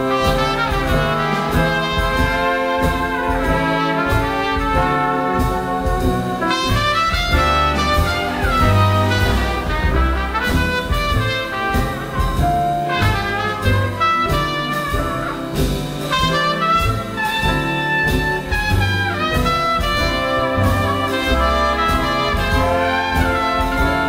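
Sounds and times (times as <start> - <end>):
jazz band accompanying: 0.0 - 24.0
trumpet jazz solo: 0.0 - 24.0.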